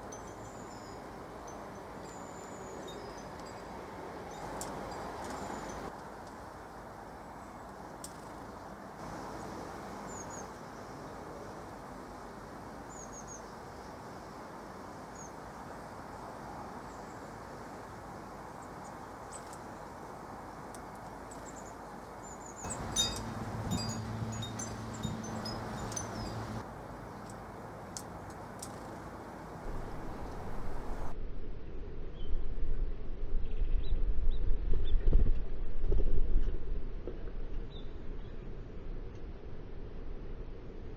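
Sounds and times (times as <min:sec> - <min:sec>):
low background rush: 0:02.0 - 0:31.3
small birds chirping: 0:20.7 - 0:29.0
low hum: 0:22.7 - 0:26.6.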